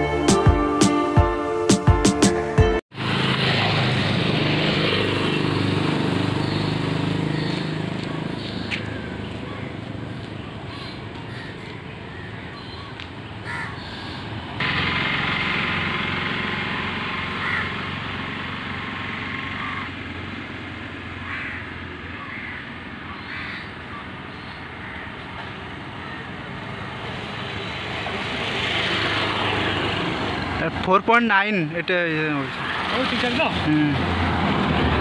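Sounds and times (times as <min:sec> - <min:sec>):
motor vehicle approaching: 0:02.3 - 0:35.0
crows cawing: 0:06.4 - 0:09.8, 0:10.7 - 0:14.2, 0:17.4 - 0:17.9, 0:19.5 - 0:20.0, 0:21.1 - 0:26.4.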